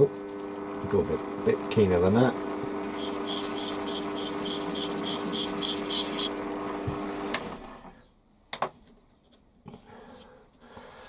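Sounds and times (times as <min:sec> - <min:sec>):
lathe whining: 0:02.7 - 0:07.3
scraper ticking on spinning part: 0:02.8 - 0:06.4.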